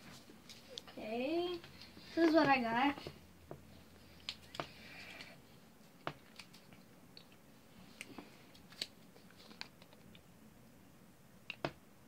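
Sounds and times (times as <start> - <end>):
paper slip crinkling: 8.5 - 10.2.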